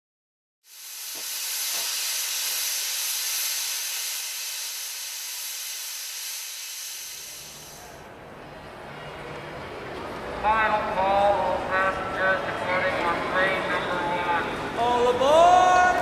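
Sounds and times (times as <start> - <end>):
steam locomotive venting steam: 0.6 - 8.1.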